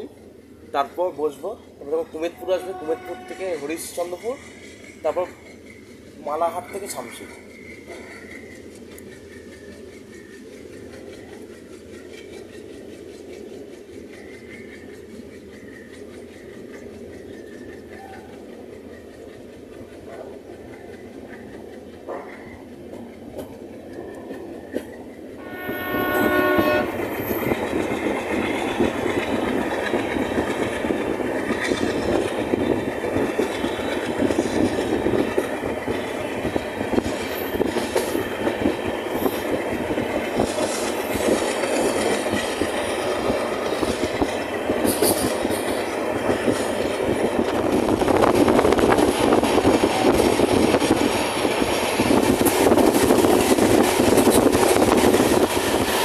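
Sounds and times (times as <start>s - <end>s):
train wheels rumbling on rails: 0.0s - 56.0s
train horn: 2.3s - 3.6s, 25.4s - 27.5s.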